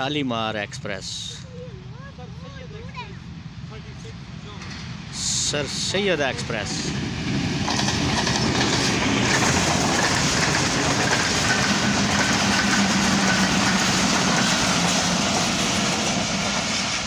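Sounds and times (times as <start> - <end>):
train wheels rumbling on rails: 3.7 - 17.0.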